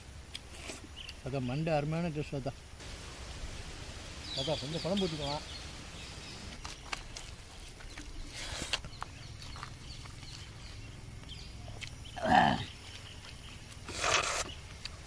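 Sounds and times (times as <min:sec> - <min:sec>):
faint steady hiss: 0:00.0 - 0:15.0
short loud grunt: 0:12.2 - 0:12.7.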